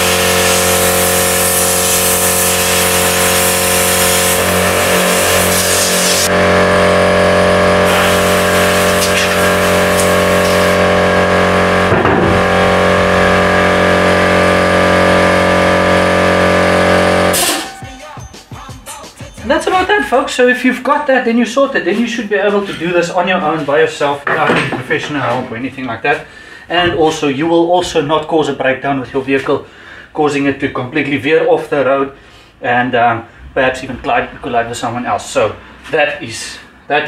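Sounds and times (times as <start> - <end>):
compressed air hissing: 0.0 - 6.3, 7.8 - 10.9
steady machine hum: 0.0 - 17.8.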